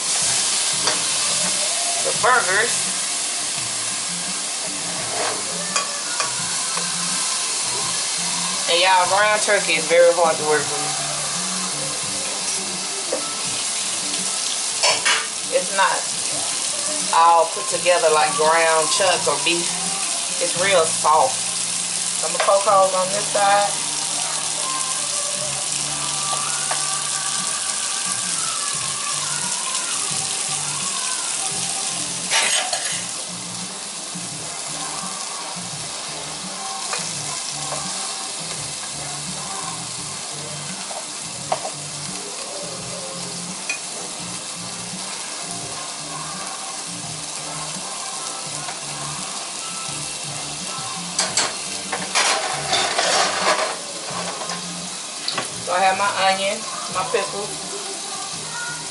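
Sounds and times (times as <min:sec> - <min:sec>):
meat patty sizzling in a skillet: 0:00.0 - 0:58.9
metal spatula scraping a pan: 0:04.9 - 0:06.4, 0:32.3 - 0:33.1, 0:51.2 - 0:54.7.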